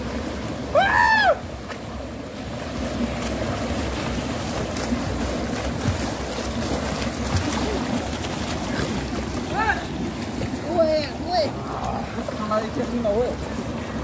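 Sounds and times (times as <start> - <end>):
small waterfall rushing: 0.0 - 14.0
loud shout: 0.7 - 1.4
swimmers splashing: 2.5 - 14.0.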